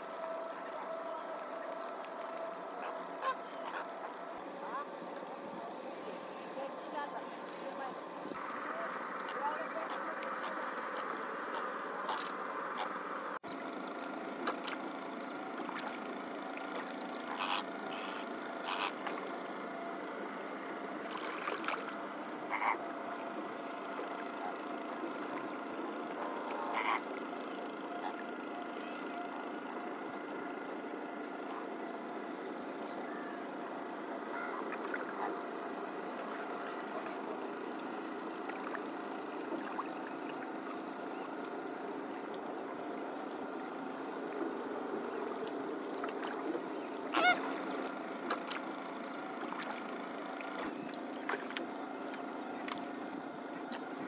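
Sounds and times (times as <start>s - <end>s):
flamingos gabbling: 0.0s - 6.2s, 6.9s - 54.0s
flamingo honks: 17.2s - 19.0s, 26.2s - 27.1s, 47.1s - 47.6s.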